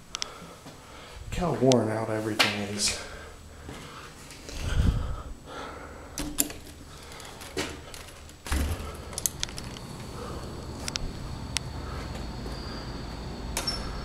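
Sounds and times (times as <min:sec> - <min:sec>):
door thud: 0:08.4 - 0:09.0.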